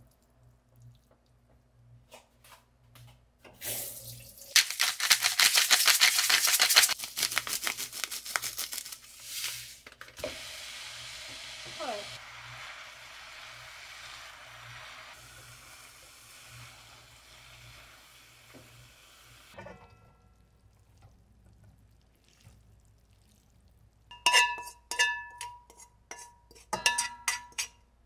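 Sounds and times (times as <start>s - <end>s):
food sizzling in a frying pan: 9.2s - 19.6s
pan clinking against metal strainer: 24.1s - 27.8s.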